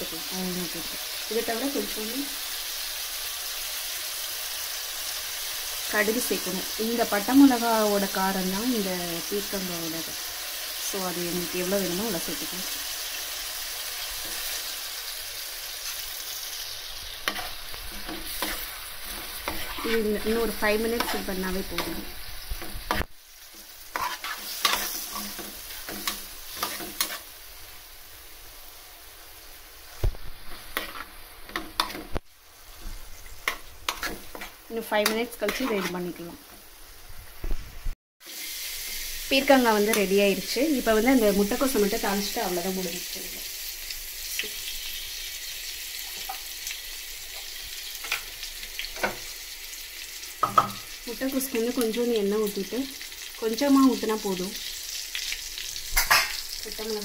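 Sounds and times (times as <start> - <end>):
hot pan hissing on gas burner: 0.0 - 36.0, 38.2 - 57.0
vegetables sizzling in oil: 0.0 - 57.0
pan crackling: 5.4 - 37.6, 38.2 - 57.0
steel spoon scraping a pan: 15.8 - 27.4, 30.4 - 36.2, 54.6 - 56.6.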